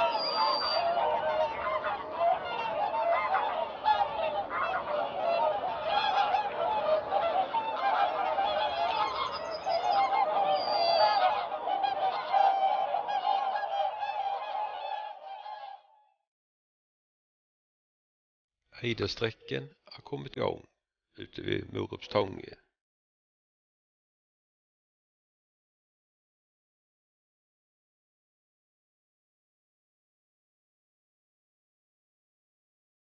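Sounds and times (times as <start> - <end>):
swans honking and bugling: 0.0 - 16.0.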